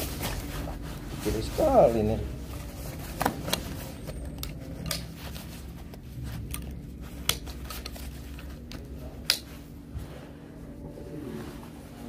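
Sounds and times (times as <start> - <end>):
plastic coverall rustling: 0.0 - 12.0
steady low hum: 0.0 - 12.0.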